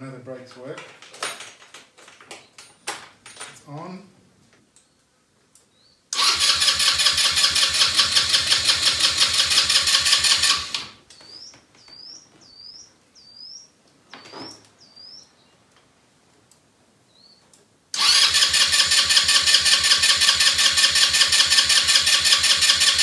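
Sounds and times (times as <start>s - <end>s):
electric starter cranking engine: 6.2s - 11.0s, 18.0s - 23.0s
bird chirping: 11.1s - 15.6s, 17.1s - 17.5s.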